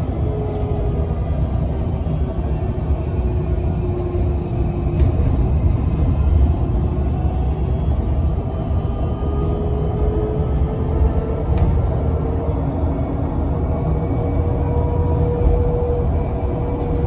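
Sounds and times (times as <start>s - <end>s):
bus tyre and body rumble: 0.0s - 17.0s.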